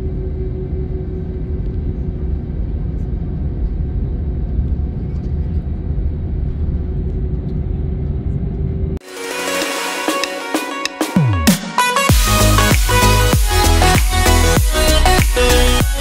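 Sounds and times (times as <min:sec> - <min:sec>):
wheels and airframe rumble: 0:00.0 - 0:09.0.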